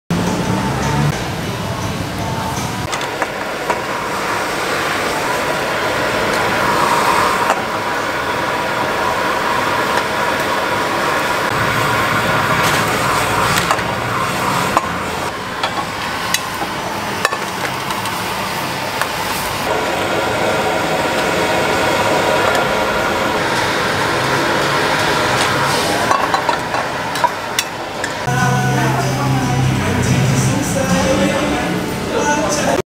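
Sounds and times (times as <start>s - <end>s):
gas burner roaring: 0.1s - 32.8s.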